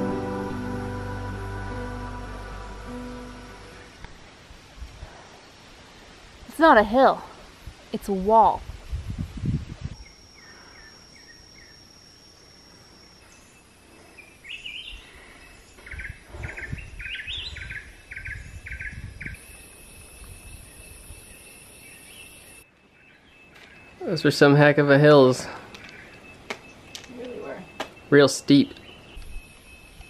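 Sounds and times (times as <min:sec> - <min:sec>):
low rumbles: 0:00.0 - 0:05.1
high-pitched insect drones: 0:09.9 - 0:15.8, 0:18.7 - 0:22.6, 0:29.2 - 0:30.0
bird chirping: 0:10.0 - 0:24.5, 0:25.4 - 0:30.0.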